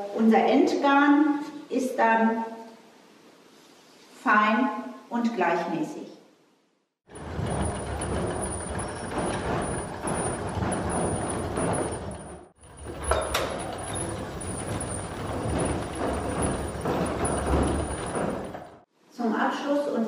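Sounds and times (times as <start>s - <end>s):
spinning machine rattling din: 7.1s - 18.8s.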